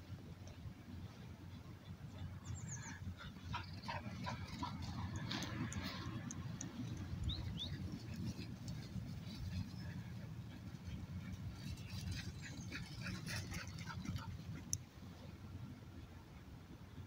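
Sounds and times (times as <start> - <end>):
dogs playing: 1.9 - 14.9.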